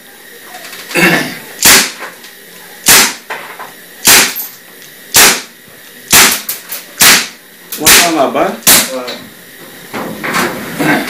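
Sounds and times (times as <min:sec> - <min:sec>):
pistol shots: 0:01.6 - 0:02.0, 0:02.9 - 0:03.2, 0:04.0 - 0:04.4, 0:05.2 - 0:05.5, 0:06.1 - 0:06.4, 0:07.0 - 0:07.4.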